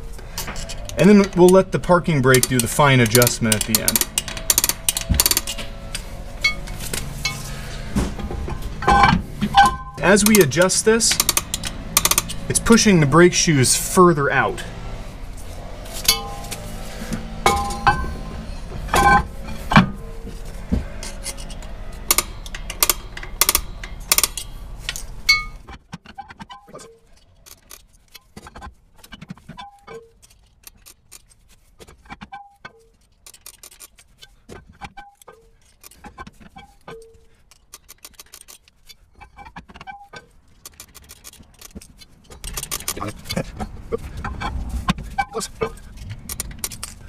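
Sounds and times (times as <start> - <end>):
brake adjuster metallic clicks: 0.4 - 7.4, 8.8 - 12.7, 21.0 - 25.6, 32.2 - 47.0
low hum: 10.9 - 25.6
metal clinks: 16.0 - 16.7, 17.4 - 20.1.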